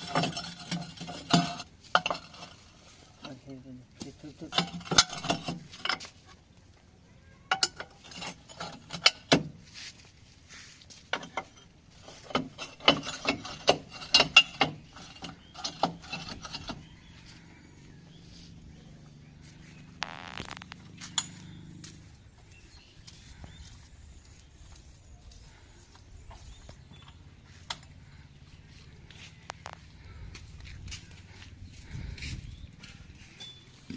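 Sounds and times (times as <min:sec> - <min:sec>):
metal hitch clanking: 0:00.0 - 0:03.6, 0:04.3 - 0:06.2, 0:07.5 - 0:09.5, 0:11.1 - 0:16.9
low steady hum: 0:13.9 - 0:33.9.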